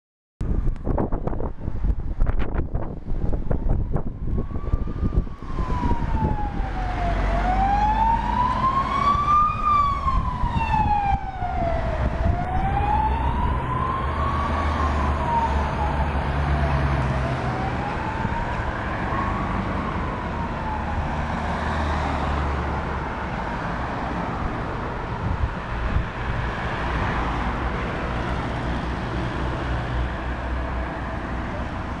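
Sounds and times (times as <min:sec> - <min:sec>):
road traffic: 0:00.4 - 0:32.0
ambulance siren wailing: 0:03.3 - 0:25.2.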